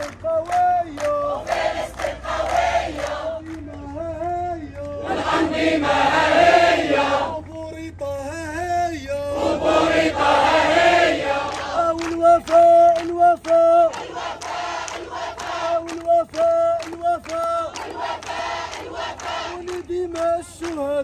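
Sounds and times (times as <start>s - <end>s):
crowd chanting in unison: 0.9s - 7.5s, 9.3s - 12.8s, 13.4s - 16.2s, 17.3s - 19.9s.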